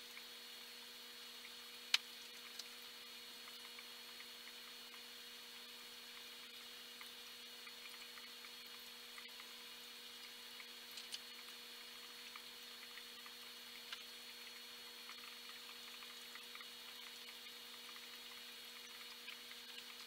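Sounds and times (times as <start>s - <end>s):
aquarium equipment hum: 0.0s - 20.0s
tiny ticks: 1.4s - 2.7s, 10.2s - 20.0s.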